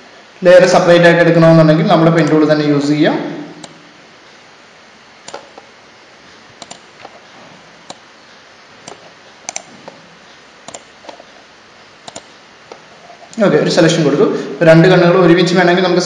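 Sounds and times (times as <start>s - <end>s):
computer mouse clicking: 5.2s - 5.7s, 6.6s - 7.2s, 7.8s - 8.1s, 8.8s - 10.0s, 10.6s - 11.3s, 12.0s - 13.4s.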